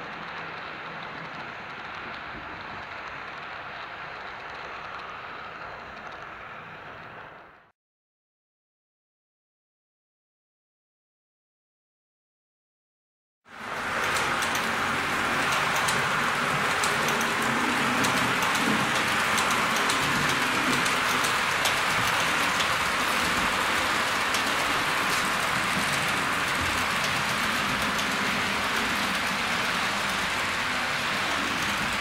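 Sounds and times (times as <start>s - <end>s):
faint clicks: 0.0s - 7.6s
model train wheels hissing on rails: 0.0s - 7.6s, 13.5s - 32.0s.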